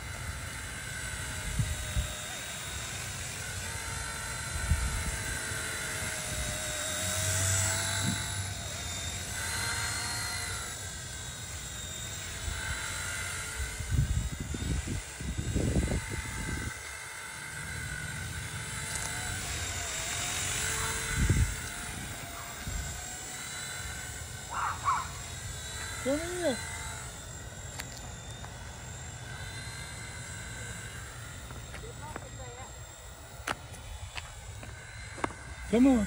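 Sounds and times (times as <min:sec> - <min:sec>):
rc helicopter motors whining: 0:00.0 - 0:36.0
wind buffeting microphone: 0:13.7 - 0:16.8, 0:20.8 - 0:23.0.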